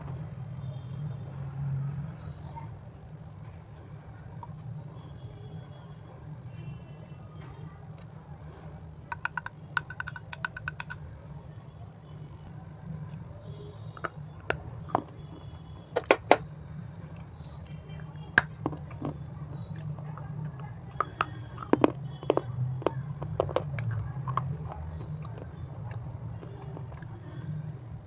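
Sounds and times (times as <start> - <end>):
chips crunching while chewed: 18.4 - 27.2.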